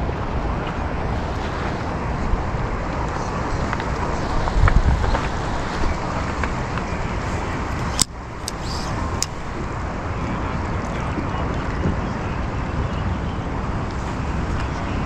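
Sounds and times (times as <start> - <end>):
river water rushing: 0.0 - 11.2
sharp clicks: 7.8 - 9.4.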